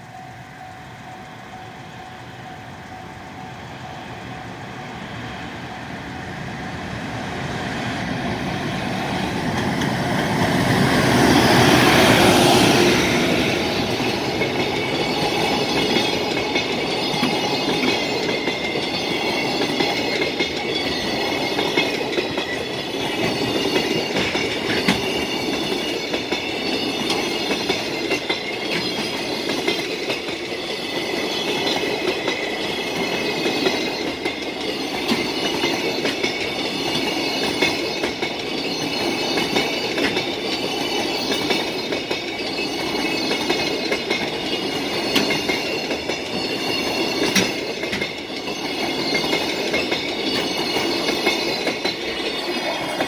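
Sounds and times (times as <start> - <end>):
level-crossing warning bell: 0.0 - 6.6, 11.3 - 53.0
electric locomotive passing: 0.0 - 53.0
wheels clattering over rail joints: 11.8 - 53.0.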